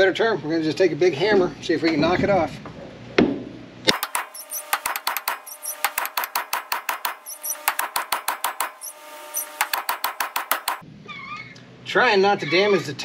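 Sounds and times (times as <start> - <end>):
rapid hammer blows on steel: 3.9 - 10.8.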